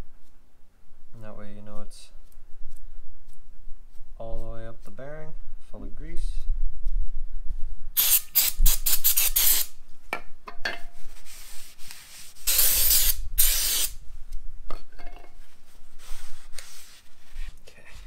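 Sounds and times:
aerosol spray hissing: 0:08.0 - 0:09.7, 0:12.4 - 0:14.0.

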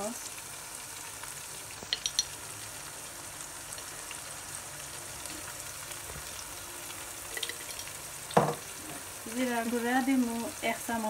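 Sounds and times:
food sizzling in oil: 0:00.0 - 0:11.0
spoon clicks: 0:01.9 - 0:02.3, 0:07.3 - 0:07.9.

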